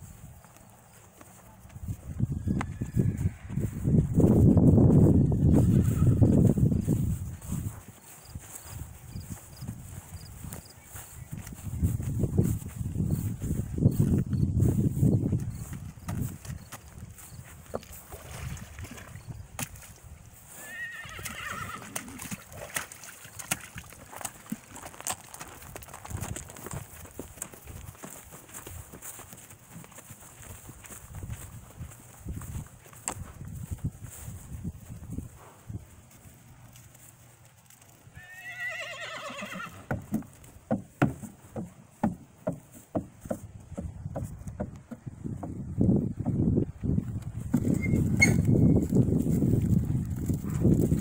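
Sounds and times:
hooves through water and gravel: 0.0s - 51.0s
horse whinnying: 2.6s - 3.6s, 5.6s - 6.2s, 20.6s - 22.4s, 38.1s - 39.9s
hooves knocking on wooden platform: 39.6s - 48.4s.

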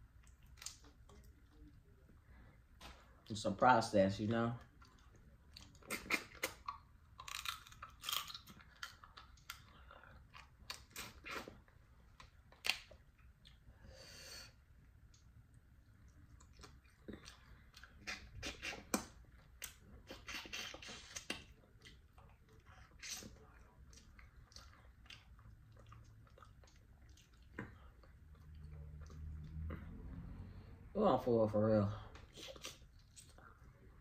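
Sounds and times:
person chewing crunchy crab: 4.7s - 13.6s, 16.3s - 29.7s.

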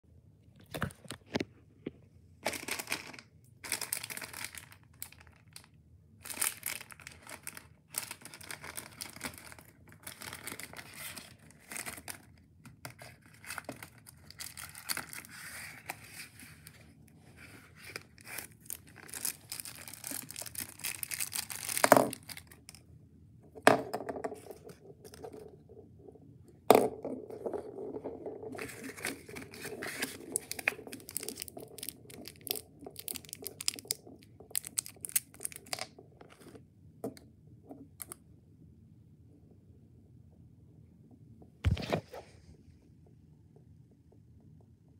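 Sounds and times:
plastic wrapper crinkling: 2.4s - 16.4s, 17.8s - 22.8s, 28.5s - 35.8s.

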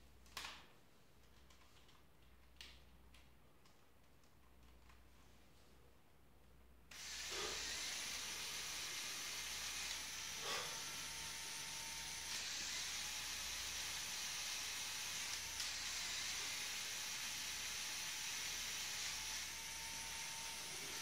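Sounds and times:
rotor blades spinning hiss: 6.9s - 11.4s.

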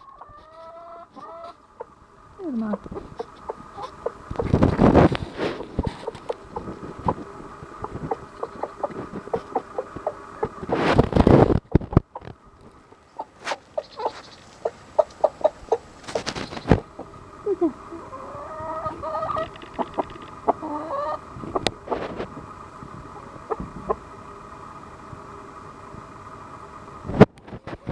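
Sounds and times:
chickens clucking: 0.0s - 24.2s, 27.4s - 27.9s
long wavering chicken call: 5.6s - 10.6s, 16.9s - 22.1s.

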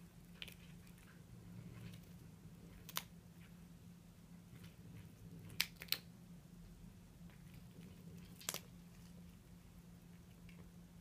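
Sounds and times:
cat chewing: 0.0s - 3.6s, 7.2s - 10.8s.

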